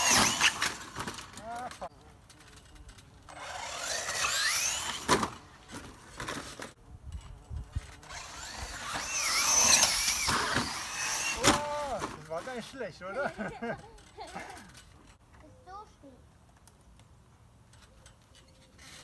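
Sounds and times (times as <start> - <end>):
electric motor whining: 0.0 - 0.9, 3.3 - 5.4, 7.9 - 11.5.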